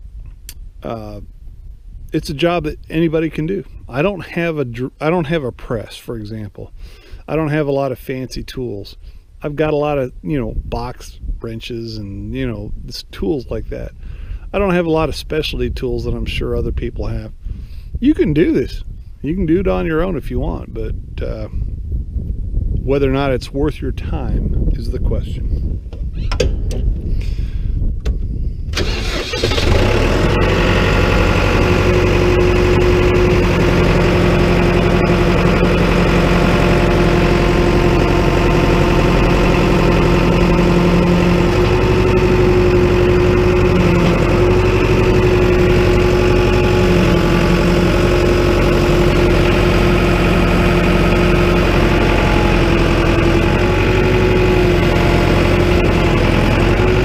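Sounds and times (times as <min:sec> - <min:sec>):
tractor diesel engine idling: 0:28.8 - 0:57.0.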